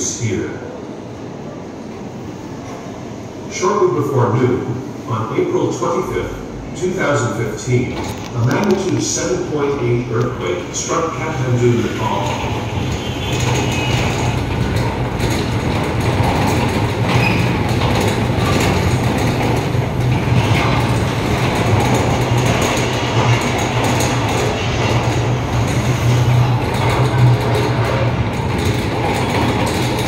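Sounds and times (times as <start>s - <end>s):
rattling: 12.0s - 30.0s.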